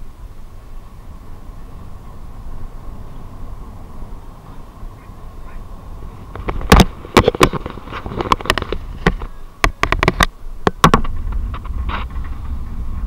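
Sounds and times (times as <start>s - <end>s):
vehicle rumble: 0.0s - 13.0s
sharp knocks and rattles: 6.3s - 12.6s.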